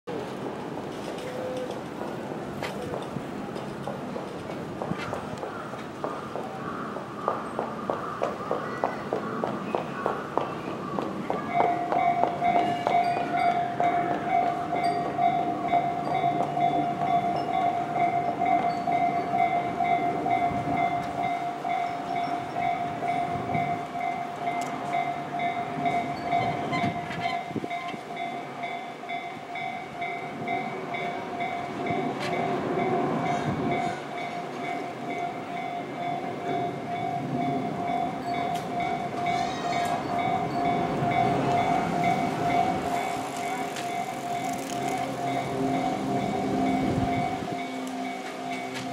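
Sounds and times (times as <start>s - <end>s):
level-crossing warning bell: 11.2s - 48.9s.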